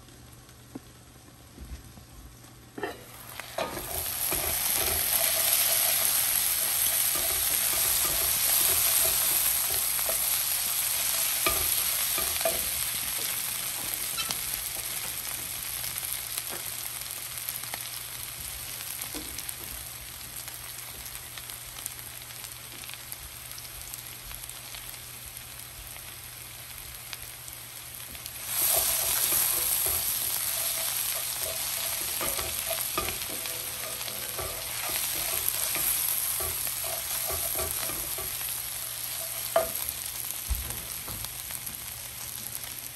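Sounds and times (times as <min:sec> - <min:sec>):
vegetables sizzling in oil: 0:02.4 - 0:42.9
wooden spoon scraping a pan: 0:02.8 - 0:12.7, 0:28.4 - 0:39.9.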